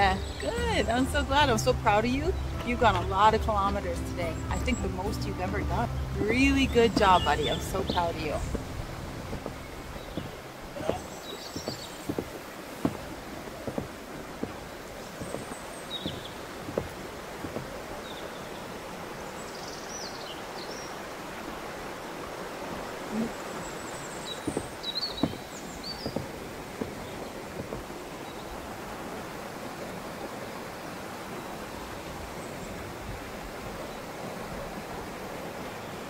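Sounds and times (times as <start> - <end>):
stream rushing: 0.0 - 36.0
soft thuds: 5.7 - 18.2, 23.4 - 28.1.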